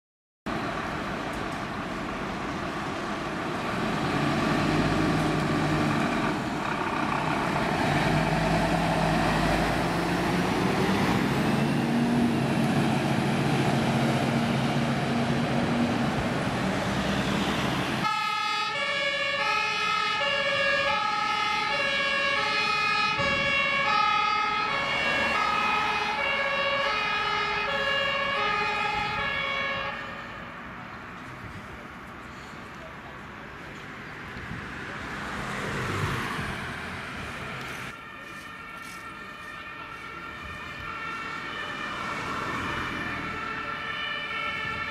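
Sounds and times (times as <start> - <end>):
diesel engines accelerating: 0.5 - 44.9
road noise: 0.5 - 44.9
two-tone fire engine siren: 16.8 - 30.7, 37.2 - 44.9.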